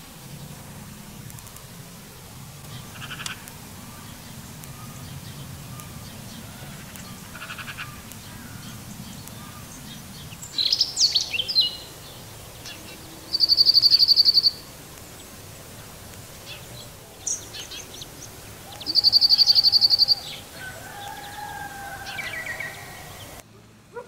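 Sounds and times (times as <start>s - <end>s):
faint low drawn-out tone: 0.0s - 13.4s
high bird chirps: 2.6s - 15.4s, 16.4s - 23.4s
songbird trilling: 2.6s - 23.4s.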